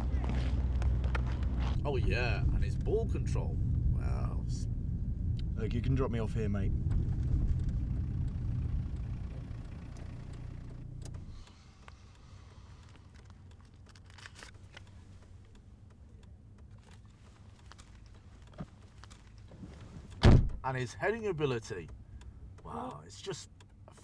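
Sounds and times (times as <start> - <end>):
car engine and road rumble: 0.0 - 24.0
car engine idling: 0.0 - 24.0
faint clicks and rustles: 6.8 - 20.2.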